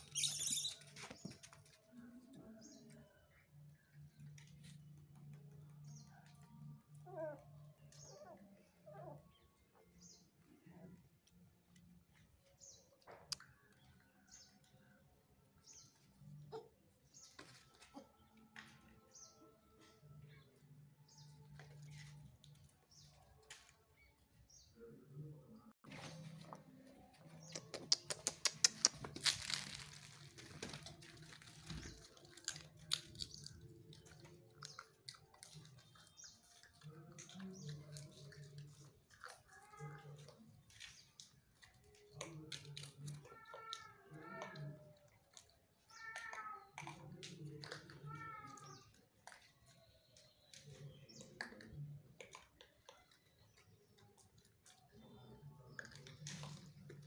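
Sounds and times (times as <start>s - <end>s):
claws clicking and scrabbling: 27.3s - 43.8s.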